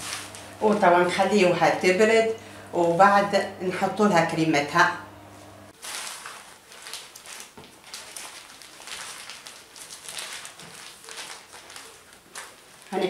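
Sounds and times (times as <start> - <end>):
tea towel rustling and swishing: 0.0 - 1.0.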